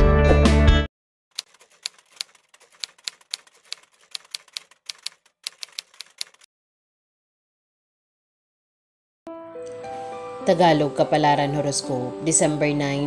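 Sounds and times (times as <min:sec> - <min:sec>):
typewriter key clicks: 0:01.4 - 0:06.5.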